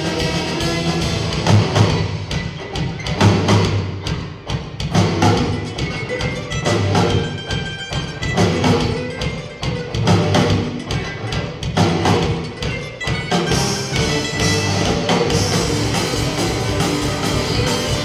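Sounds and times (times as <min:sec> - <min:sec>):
electric guitars: 0:00.0 - 0:18.0
steady drum beat: 0:00.0 - 0:18.0
mandolin: 0:04.9 - 0:18.0.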